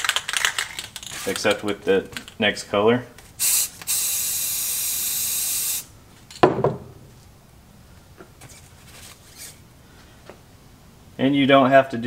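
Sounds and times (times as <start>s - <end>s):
spray-paint can hissing: 3.4s - 5.9s.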